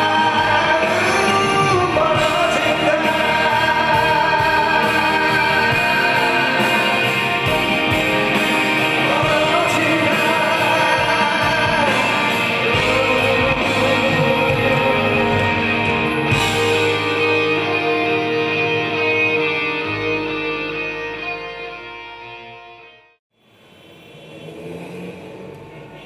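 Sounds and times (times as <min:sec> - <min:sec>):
man singing into microphone: 0:00.0 - 0:07.6, 0:08.8 - 0:17.4
band accompaniment: 0:00.0 - 0:22.0.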